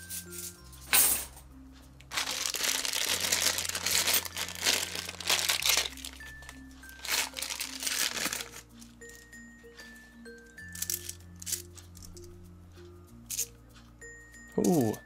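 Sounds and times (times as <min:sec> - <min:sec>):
light background music: 0:00.0 - 0:15.0
coins rustling in hand: 0:02.1 - 0:09.2, 0:10.6 - 0:12.4, 0:13.3 - 0:13.5.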